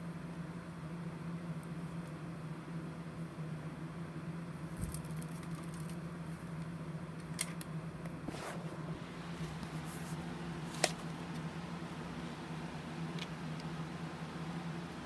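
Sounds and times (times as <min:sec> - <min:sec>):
steady low hum: 0:00.0 - 0:15.0
cassette clicks and rustles: 0:06.6 - 0:07.8, 0:09.4 - 0:11.5, 0:13.0 - 0:13.8.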